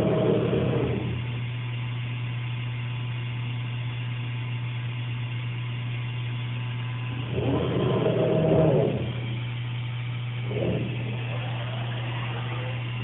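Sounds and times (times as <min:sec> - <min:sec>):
cnc router humming: 0:00.0 - 0:01.5, 0:06.2 - 0:13.0
motor whine: 0:00.0 - 0:13.0.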